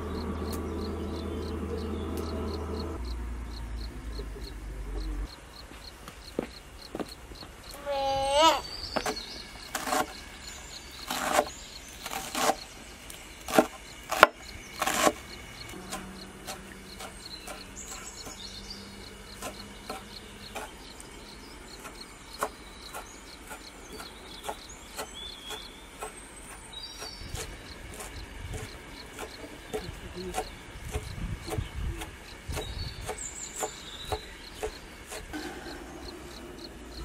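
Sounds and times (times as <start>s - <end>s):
knife chopping on wooden board: 27.4s - 35.5s.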